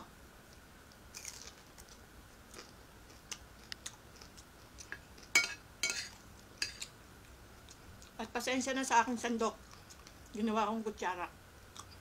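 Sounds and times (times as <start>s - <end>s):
chewing crunchy food: 0.5s - 5.4s, 9.6s - 10.4s, 11.7s - 12.0s.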